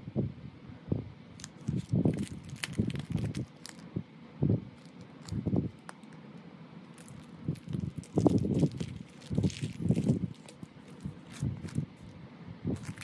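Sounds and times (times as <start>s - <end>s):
plastic packaging crinkling: 1.4s - 3.9s, 4.8s - 6.2s, 6.9s - 12.1s, 12.8s - 13.0s.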